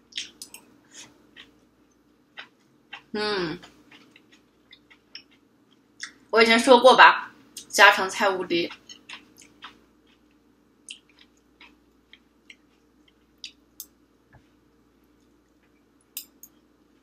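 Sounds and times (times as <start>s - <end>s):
faint room hum: 0.0s - 17.0s
chewing clicks and smacks: 1.4s - 6.2s, 8.7s - 14.0s.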